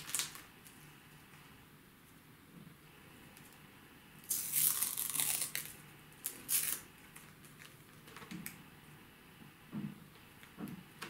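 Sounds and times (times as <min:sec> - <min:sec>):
packaging crinkling and rustling: 0:00.0 - 0:00.5, 0:04.3 - 0:08.6.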